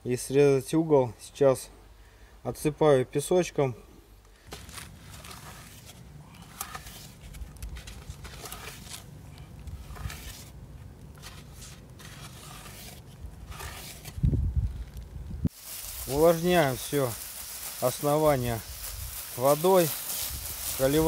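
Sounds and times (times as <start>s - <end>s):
wooden board scraping sand: 4.5s - 9.1s, 9.7s - 10.6s, 11.2s - 14.4s.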